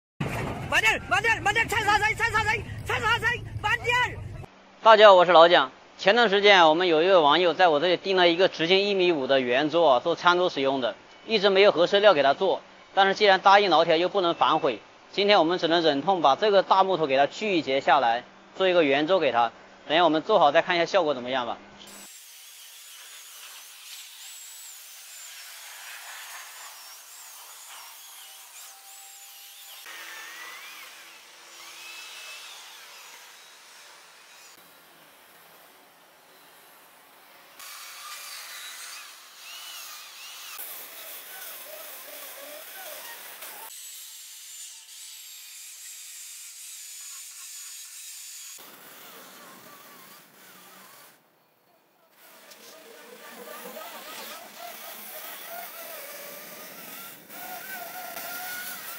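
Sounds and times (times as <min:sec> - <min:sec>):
electric chainsaw whining: 0:21.9 - 0:51.2, 0:52.2 - 0:58.9.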